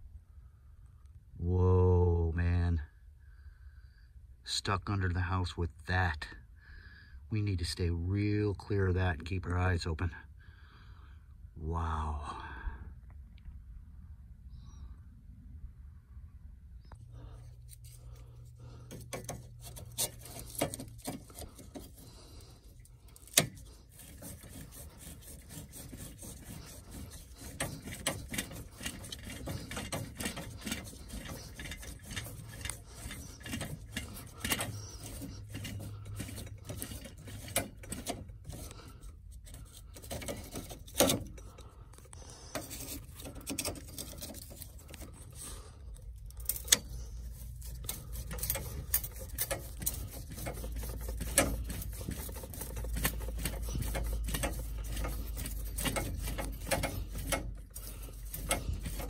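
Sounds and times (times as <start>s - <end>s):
tubing cutter scraping copper pipe: 16.8s - 59.0s.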